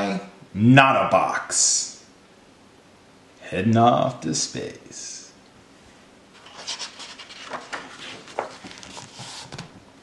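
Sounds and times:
book page turning: 0:06.4 - 0:09.8.

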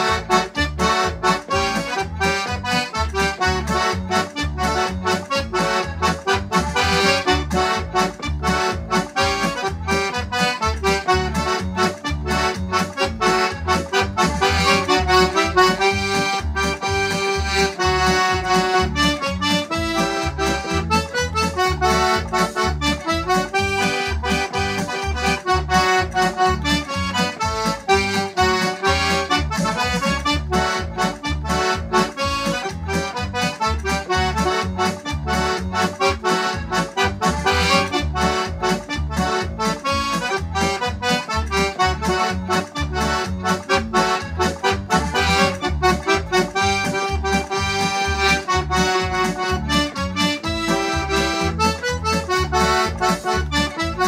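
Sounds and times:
button accordion playing a polka: 0:00.0 - 0:54.0.

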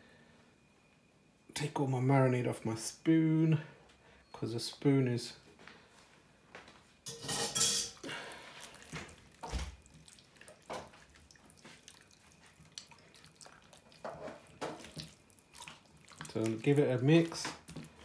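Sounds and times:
wet squelches and slaps: 0:08.6 - 0:18.0.

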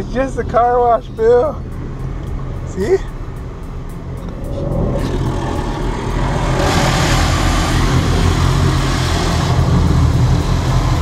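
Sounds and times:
low rumble: 0:00.0 - 0:11.0
water spray hissing on car: 0:05.4 - 0:11.0.

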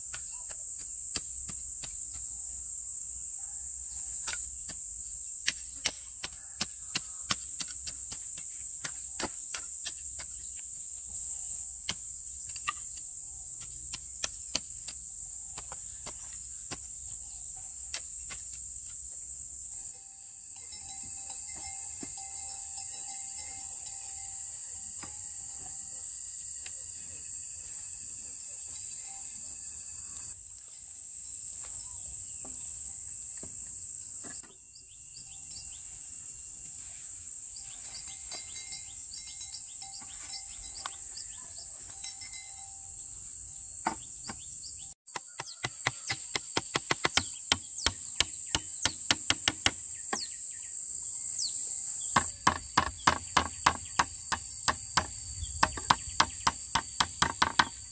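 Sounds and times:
forest background hiss: 0:00.0 - 0:57.9
tool knocking on wood: 0:45.1 - 0:50.3, 0:52.2 - 0:57.9.

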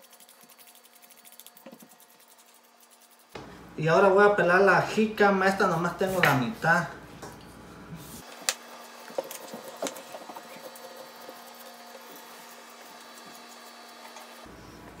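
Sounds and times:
knife scraping peel: 0:00.0 - 0:03.4.

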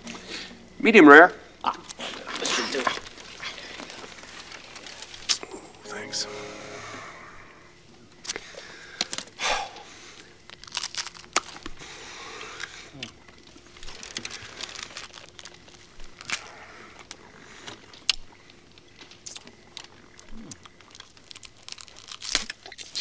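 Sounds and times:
crisp crunching while chewing: 0:01.7 - 0:05.6, 0:10.2 - 0:23.0.

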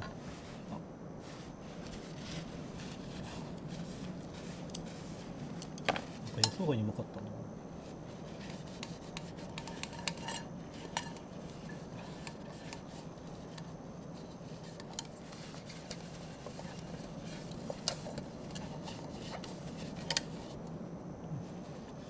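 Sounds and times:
steady low hum: 0:00.0 - 0:22.0
metal mug scraping: 0:08.4 - 0:20.5.

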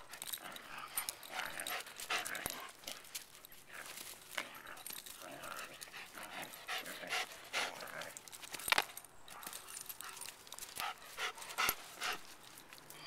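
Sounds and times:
dog panting hard: 0:00.0 - 0:02.9, 0:05.6 - 0:08.2, 0:10.0 - 0:12.4.

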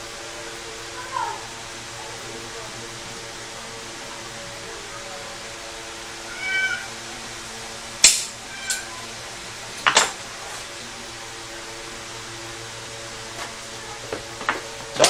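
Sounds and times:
steady background hum: 0:00.0 - 0:15.0
cat meowing: 0:06.3 - 0:07.1, 0:08.4 - 0:09.2.

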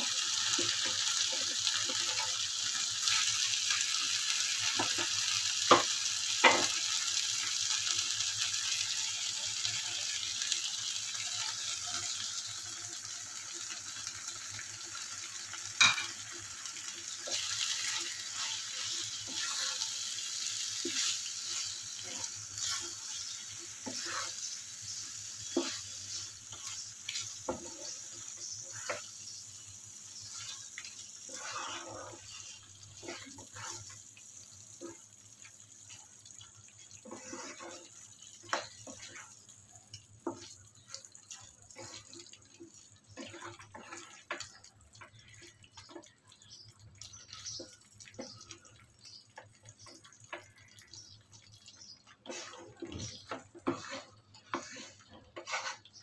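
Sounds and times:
chicken sizzling in a frying pan: 0:00.0 - 0:56.0
spatula scraping and knocking pan: 0:17.2 - 0:29.4, 0:30.2 - 0:34.0, 0:37.0 - 0:39.3, 0:52.2 - 0:56.0.

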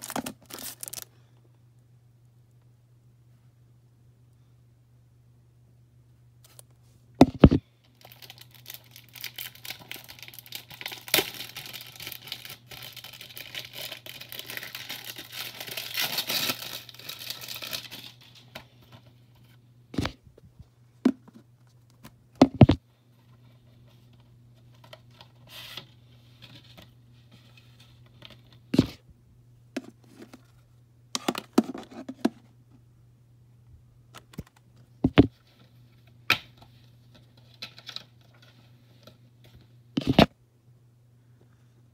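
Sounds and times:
plastic shrink wrap tearing: 0:00.0 - 0:01.1, 0:08.0 - 0:18.5
steady low hum: 0:00.0 - 0:37.5.

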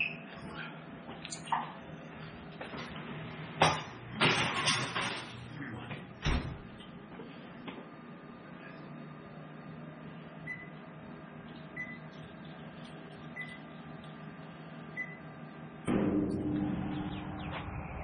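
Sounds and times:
electric range humming: 0:00.0 - 0:18.0
short high oven beeps: 0:10.4 - 0:10.8, 0:11.8 - 0:12.1, 0:13.3 - 0:13.6, 0:15.0 - 0:15.3.

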